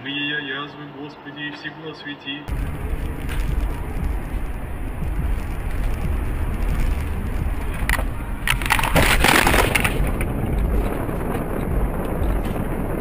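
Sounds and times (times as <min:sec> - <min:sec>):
car collision crunching: 0:02.5 - 0:11.4
road rumble inside car: 0:02.5 - 0:13.0.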